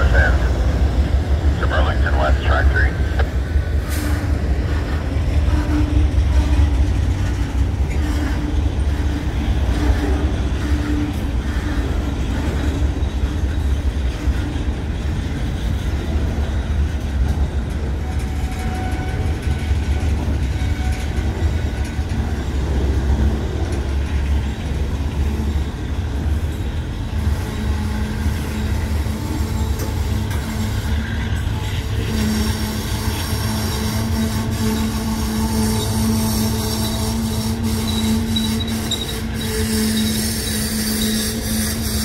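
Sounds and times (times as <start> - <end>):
train rumbling on rails: 0.0 - 42.0
wheels squealing: 30.5 - 42.0.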